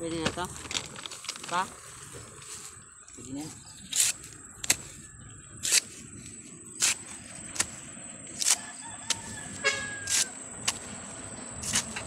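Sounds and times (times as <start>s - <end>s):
knife chopping bamboo: 8.4s - 10.9s, 11.6s - 12.0s
brief horn-like toot: 9.6s - 10.2s.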